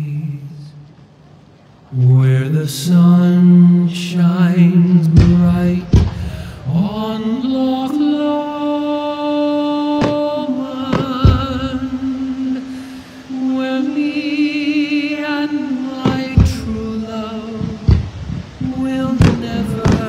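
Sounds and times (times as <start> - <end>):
fireworks bursting with bangs: 5.0 - 8.4, 9.6 - 20.0.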